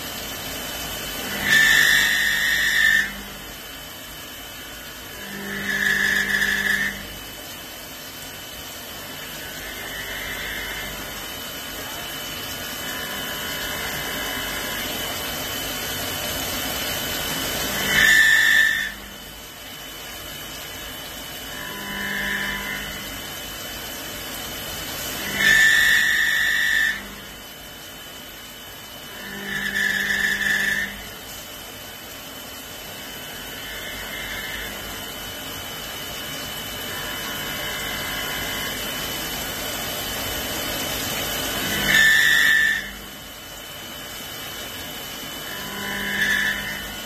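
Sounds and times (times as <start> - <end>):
coolant spray and cutting hiss: 0.0 - 47.0
high pitched machine whine: 45.2 - 47.0.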